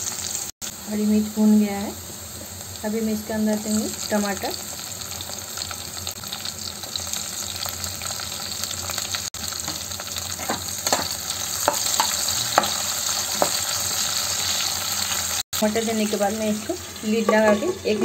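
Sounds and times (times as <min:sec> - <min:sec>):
vegetables sizzling in hot oil: 0:00.0 - 0:18.0
metal spatula scraping pan: 0:16.9 - 0:18.0.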